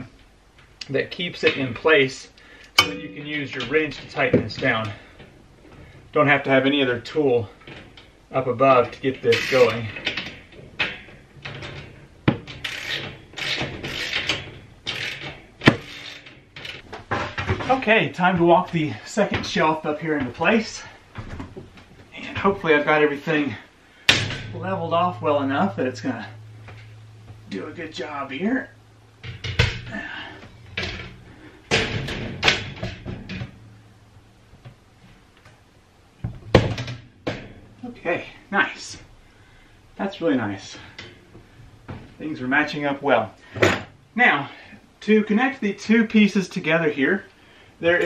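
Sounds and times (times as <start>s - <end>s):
metal wire shelf knocking: 2.8s - 3.7s, 29.2s - 30.0s, 36.2s - 37.8s
wrench scraping metal on metal: 9.2s - 9.9s, 12.6s - 16.8s.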